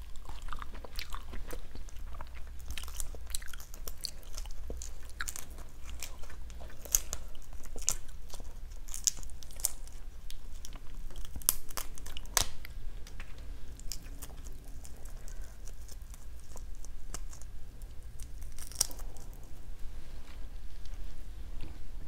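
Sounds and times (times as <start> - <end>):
shrimp shells cracking: 11.0 - 12.7, 18.2 - 19.4.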